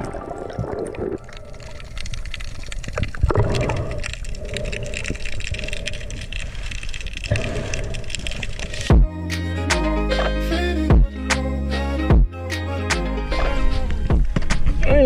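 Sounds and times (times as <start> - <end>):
underwater rushing and gurgling: 0.0 - 9.0.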